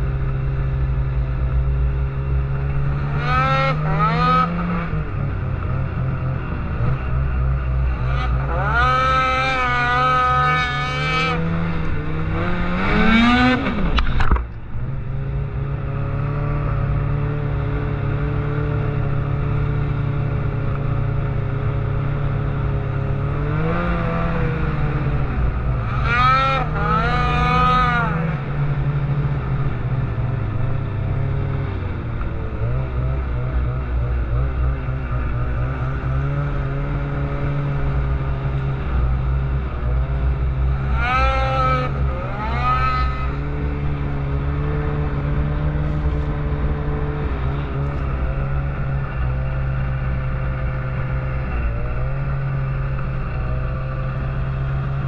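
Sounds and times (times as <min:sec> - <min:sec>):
snowmobile engine revving: 0:02.2 - 0:14.1, 0:22.2 - 0:28.8, 0:32.5 - 0:55.0.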